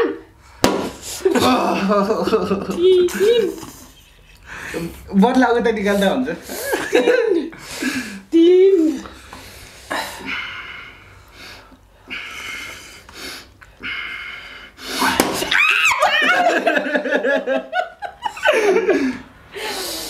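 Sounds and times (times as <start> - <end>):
hissing breaths through teeth: 9.0 - 15.1
loud laughter: 15.0 - 19.2.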